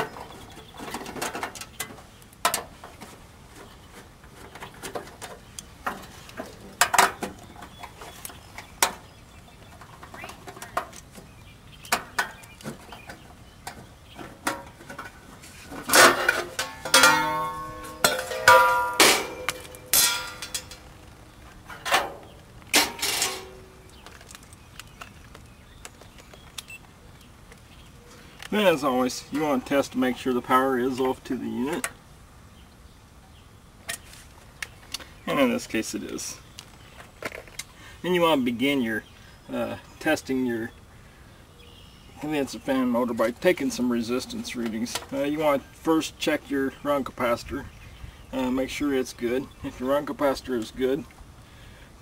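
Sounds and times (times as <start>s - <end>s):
metal panel rattling and clanking: 11.9s - 20.8s.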